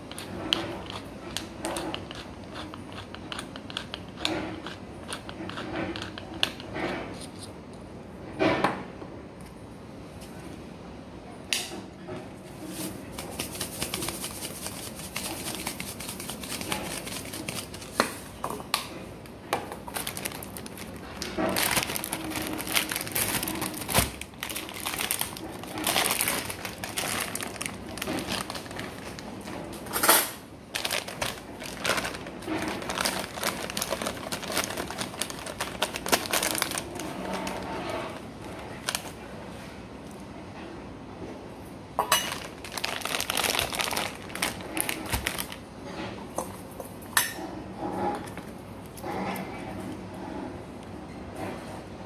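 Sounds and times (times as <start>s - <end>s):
plastic bag rustling: 12.5s - 18.4s, 19.7s - 30.0s, 30.6s - 39.6s, 42.0s - 45.7s.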